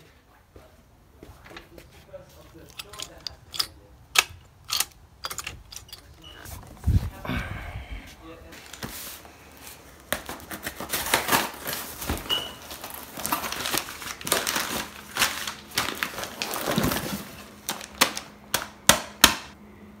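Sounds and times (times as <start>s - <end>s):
packing paper crumpling: 10.3s - 18.4s.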